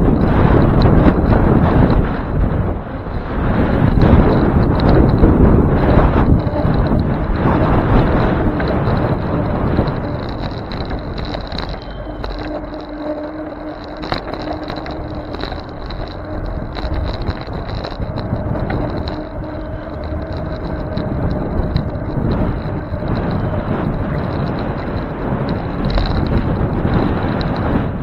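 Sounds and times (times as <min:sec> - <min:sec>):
bicycle road rumble: 0:00.0 - 0:28.0
steady low hum: 0:00.0 - 0:28.0
wind: 0:00.0 - 0:28.0.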